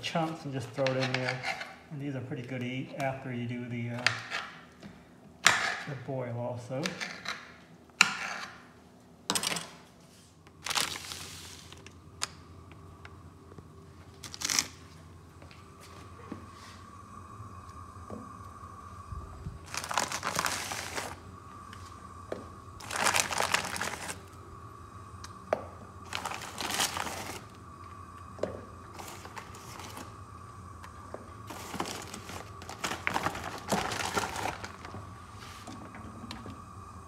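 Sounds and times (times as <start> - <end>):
faint steady whine: 0.0 - 37.0
plastic bag crinkling: 10.5 - 11.8, 14.1 - 15.0, 19.6 - 21.2, 22.8 - 24.3, 26.0 - 27.5, 31.4 - 34.9.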